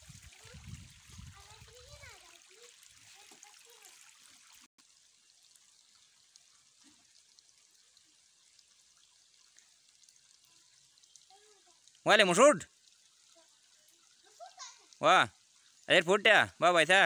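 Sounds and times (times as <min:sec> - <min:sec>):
faint outdoor hiss: 0:00.0 - 0:17.0
faint children's voices: 0:00.1 - 0:04.5, 0:10.4 - 0:12.0.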